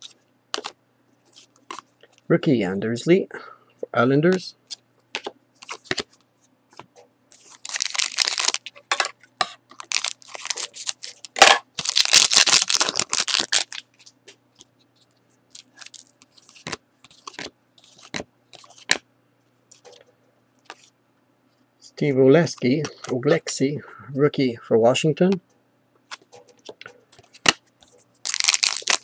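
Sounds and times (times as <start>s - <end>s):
cards clicking and rustling: 0.0s - 1.9s, 4.7s - 9.0s, 9.7s - 14.7s, 15.5s - 19.0s, 26.0s - 29.0s
wrapper crinkling: 7.3s - 8.8s, 9.7s - 14.2s, 15.5s - 18.9s, 28.2s - 29.0s
foil pack tearing: 7.4s - 8.7s, 9.8s - 13.8s, 28.2s - 29.0s.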